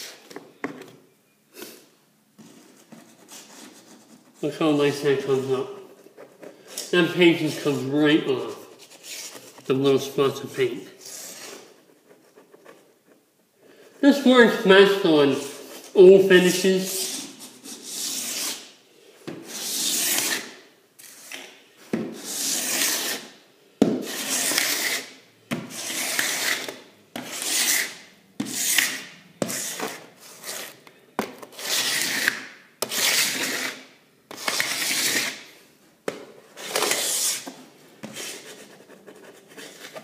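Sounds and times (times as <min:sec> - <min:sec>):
paint scraper scraping floorboards: 0:11.0 - 0:12.8, 0:15.3 - 0:35.6, 0:36.4 - 0:40.0.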